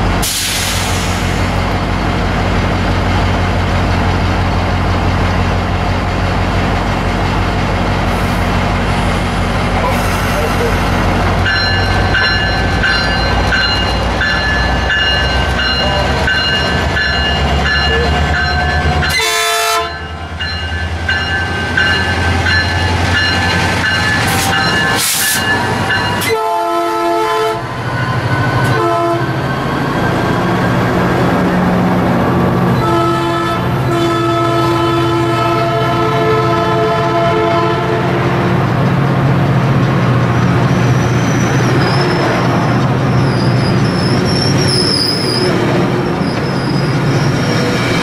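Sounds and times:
diesel locomotive engine running: 0:00.0 - 0:48.0
train wheels and coaches rumbling: 0:00.0 - 0:48.0
train horn blasts: 0:19.0 - 0:20.1, 0:26.2 - 0:27.7, 0:28.7 - 0:29.4, 0:32.8 - 0:38.2.

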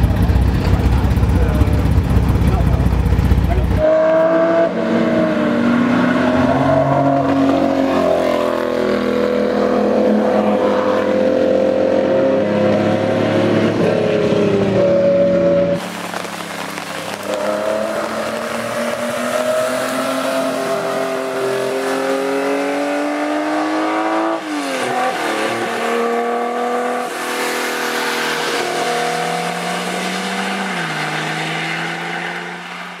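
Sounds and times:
race car engine accelerating: 0:00.0 - 0:33.0
tyre spray hissing on wet track: 0:15.8 - 0:18.7.

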